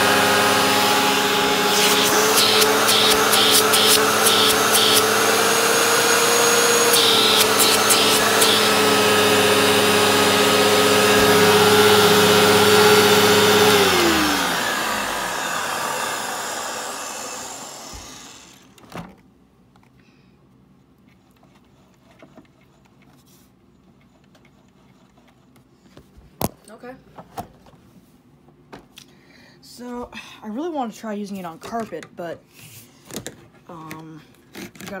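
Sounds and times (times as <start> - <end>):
vacuum cleaner motor running: 0.0 - 18.8.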